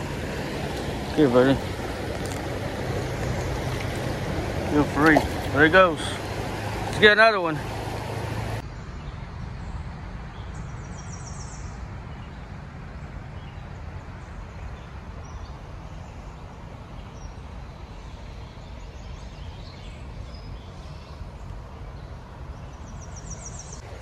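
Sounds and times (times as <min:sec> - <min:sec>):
creek water rushing: 0:00.0 - 0:08.6, 0:23.8 - 0:24.0.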